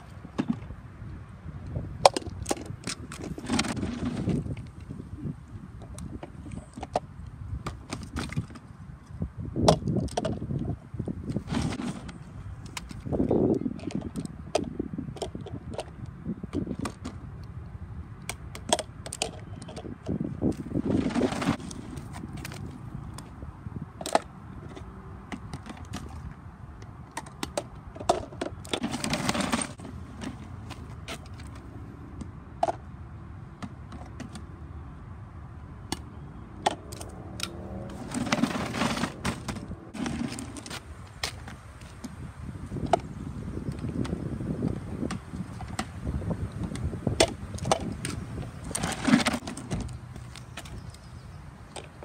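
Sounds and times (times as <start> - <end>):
plastic clicks and clacks: 11.3 - 17.5, 18.2 - 20.6, 24.0 - 31.6, 32.2 - 32.8, 33.6 - 34.5
plastic toy clicks and clatter: 18.3 - 20.6.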